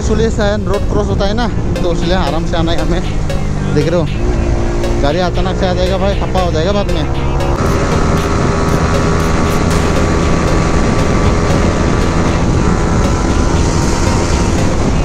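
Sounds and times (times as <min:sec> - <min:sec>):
motorcycle engine running hard: 0:00.0 - 0:15.0
wind rush over microphone: 0:07.6 - 0:15.0.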